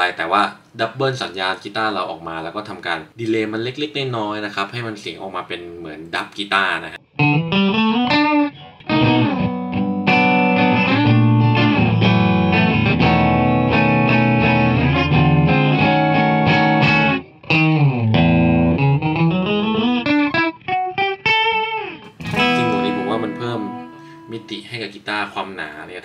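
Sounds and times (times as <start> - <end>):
doubled electric guitar: 7.0 - 24.6.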